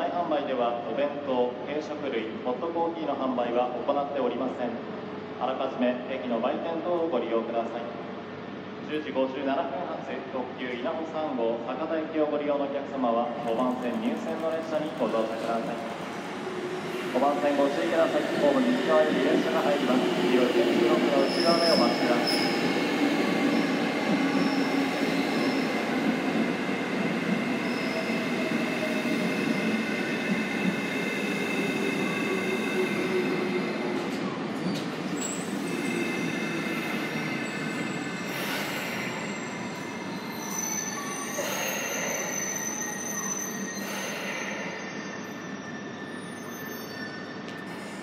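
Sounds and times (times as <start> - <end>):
electric train rumbling: 13.3 - 46.4
wheels and brakes squealing: 21.1 - 26.1, 27.5 - 33.8, 39.0 - 48.0.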